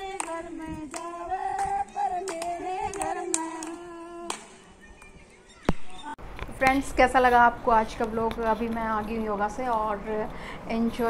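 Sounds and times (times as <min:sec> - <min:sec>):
women singing together: 0:00.0 - 0:04.8
hand claps: 0:00.0 - 0:05.2.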